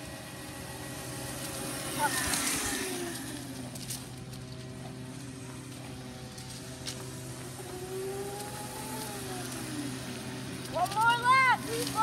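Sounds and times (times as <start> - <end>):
mini dirt bike motor whining: 0.0 - 12.0.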